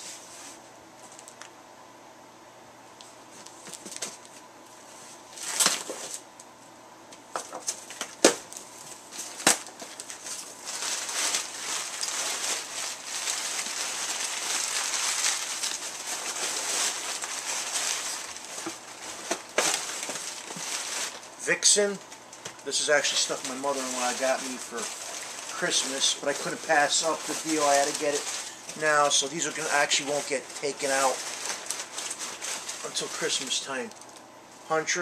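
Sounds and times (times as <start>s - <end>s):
packing paper crinkling: 3.3s - 4.5s, 5.3s - 6.2s, 7.4s - 34.3s.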